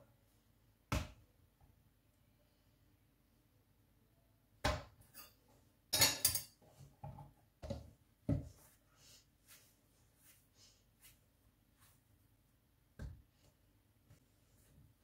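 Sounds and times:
dough knocks and thuds: 0.9 - 1.3, 4.6 - 5.0, 7.0 - 8.6, 12.9 - 13.4.

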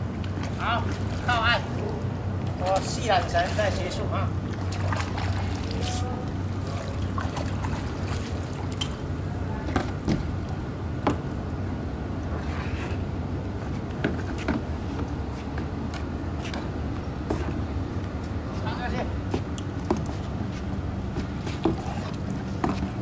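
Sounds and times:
steady low hum: 0.0 - 23.0
paddle splashing water: 0.1 - 2.0, 2.7 - 9.1.

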